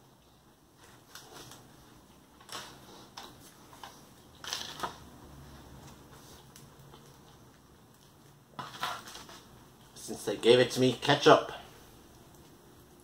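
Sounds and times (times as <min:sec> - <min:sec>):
chewing crispy food: 0:05.6 - 0:08.5.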